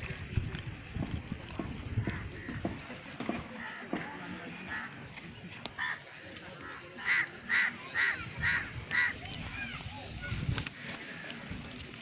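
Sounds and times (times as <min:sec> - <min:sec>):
crow cawing: 0:05.8 - 0:06.0, 0:06.6 - 0:09.2.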